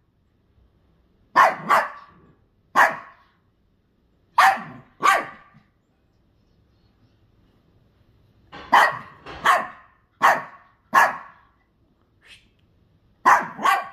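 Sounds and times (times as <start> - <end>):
small dog barking: 1.3 - 3.4, 4.4 - 5.7, 8.6 - 11.6, 13.2 - 13.9.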